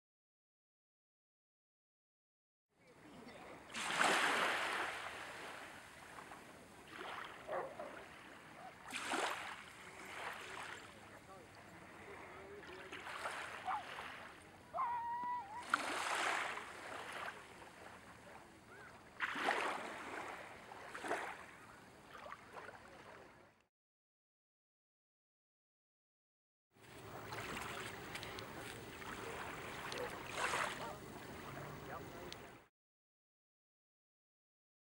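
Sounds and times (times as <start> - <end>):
small waves lapping: 2.8 - 23.6, 26.8 - 32.7
loud water splash: 3.7 - 5.6, 8.9 - 10.8, 15.5 - 17.4, 19.2 - 21.4.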